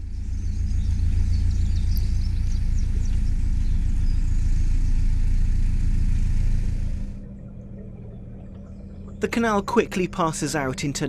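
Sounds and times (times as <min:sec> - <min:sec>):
faint bird chirps: 0:00.0 - 0:05.5
boat diesel engine thrumming: 0:00.0 - 0:07.3.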